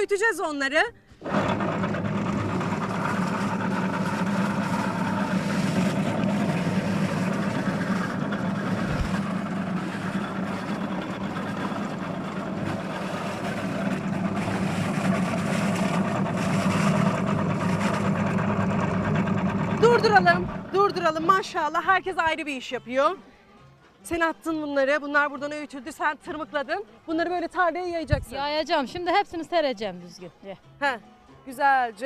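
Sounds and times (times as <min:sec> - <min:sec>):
motor grinder humming: 0:01.2 - 0:21.5.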